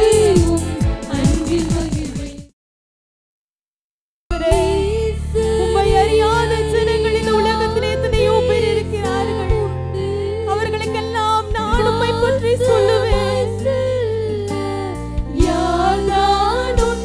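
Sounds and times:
instrumental backing: 0:00.0 - 0:02.4, 0:04.3 - 0:17.0
women's choir singing in unison: 0:00.0 - 0:02.5, 0:04.5 - 0:10.1, 0:11.8 - 0:17.0.

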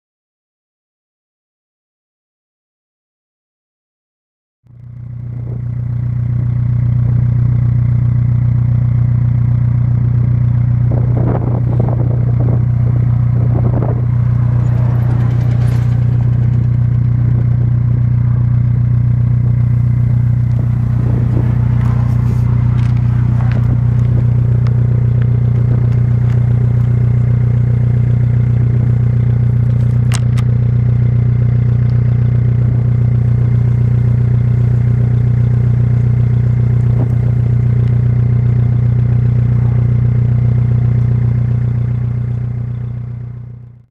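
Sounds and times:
diesel engine idling: 0:04.7 - 0:43.8
faint clicks and scrapes: 0:21.8 - 0:25.3.

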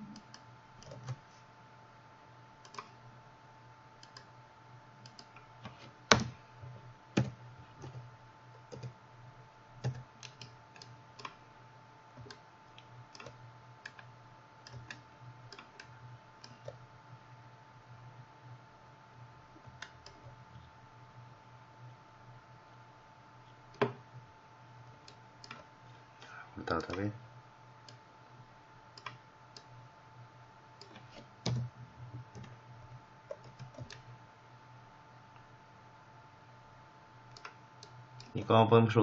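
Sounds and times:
faint steady hum: 0:00.0 - 0:39.0
computer mouse and keyboard clicks: 0:00.2 - 0:01.2, 0:02.6 - 0:03.0, 0:05.0 - 0:06.3, 0:07.2 - 0:08.1, 0:08.7 - 0:09.0, 0:09.8 - 0:11.4, 0:12.2 - 0:14.1, 0:14.7 - 0:16.8, 0:25.0 - 0:27.0, 0:29.0 - 0:29.7, 0:30.8 - 0:32.6, 0:33.3 - 0:34.1, 0:37.3 - 0:38.4.

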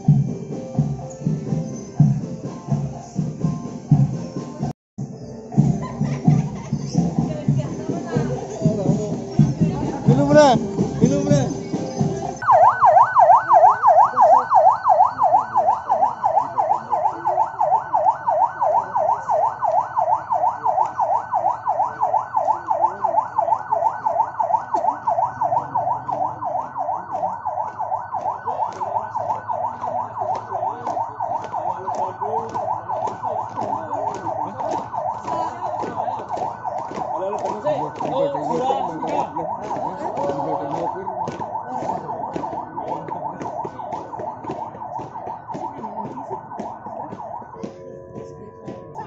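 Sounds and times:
electronic siren yelping: 0:11.5 - 0:49.0.

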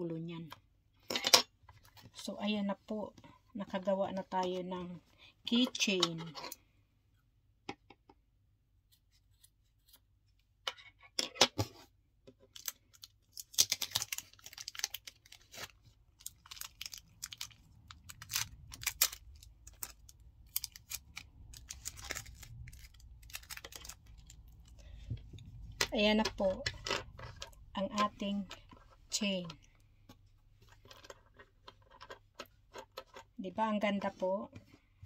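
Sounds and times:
clicks and rustles of handling: 0:10.6 - 0:34.9.

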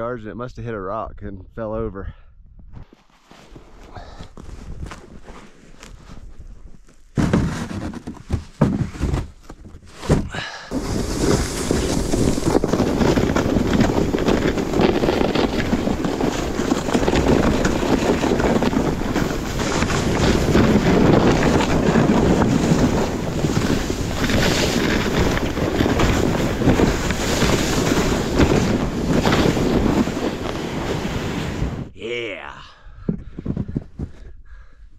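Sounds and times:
knocks and scrapes: 0:02.7 - 0:31.9, 0:33.0 - 0:34.4
sled sliding on snow: 0:10.7 - 0:31.9
wind buffeting microphone: 0:10.7 - 0:32.0.

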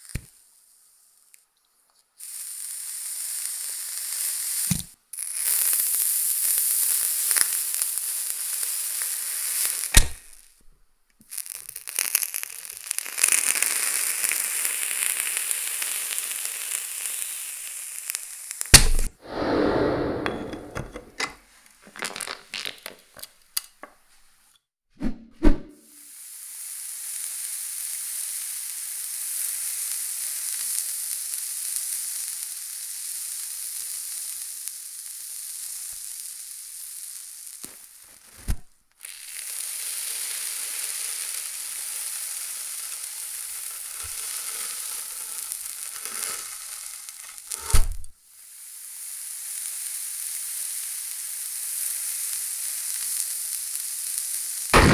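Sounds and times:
bristles burning with sizzling hiss: 0:00.0 - 0:24.4, 0:25.8 - 0:54.9
sharp thump: 0:10.0 - 0:10.3, 0:18.8 - 0:21.3, 0:47.6 - 0:48.1.

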